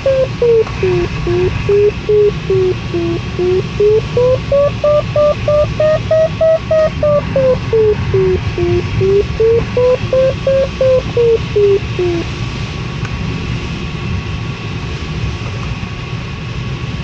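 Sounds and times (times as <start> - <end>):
variometer beeping: 0.0 - 12.3.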